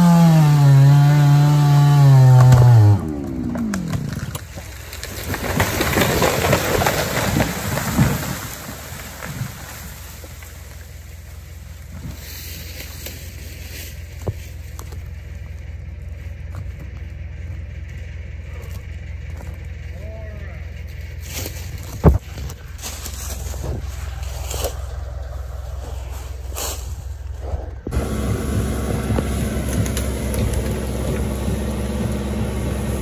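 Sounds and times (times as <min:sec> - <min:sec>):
low engine hum: 0:00.0 - 0:33.0
tree trunk thumping ground: 0:01.5 - 0:11.0, 0:21.2 - 0:25.0, 0:27.8 - 0:33.0
tree crashing through branches: 0:01.8 - 0:14.8, 0:27.9 - 0:33.0.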